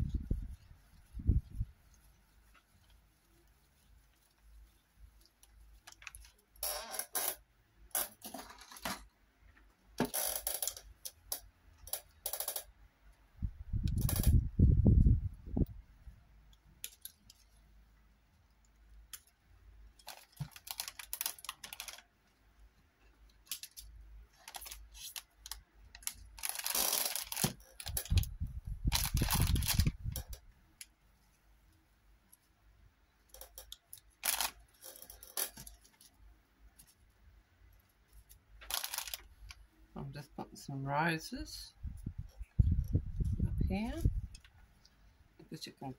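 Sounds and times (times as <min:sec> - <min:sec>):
plastic packet crinkling: 0:05.8 - 0:06.4, 0:20.0 - 0:22.1, 0:23.5 - 0:28.3, 0:28.9 - 0:30.3, 0:33.4 - 0:36.0, 0:38.6 - 0:39.6.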